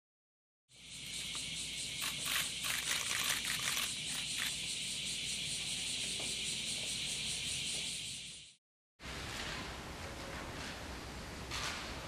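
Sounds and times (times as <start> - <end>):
high-pitched insect chorus: 0.7 - 8.6.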